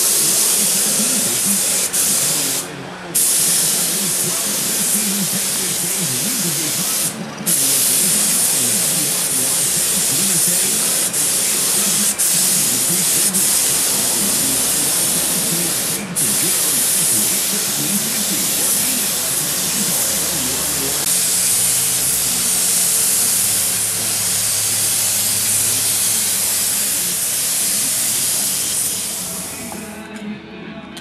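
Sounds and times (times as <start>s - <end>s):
paint spray gun hissing: 0.0s - 29.8s.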